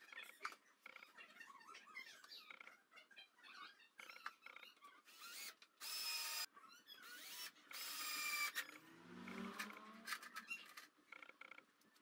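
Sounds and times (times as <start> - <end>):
drill driving screws: 5.1 - 8.6.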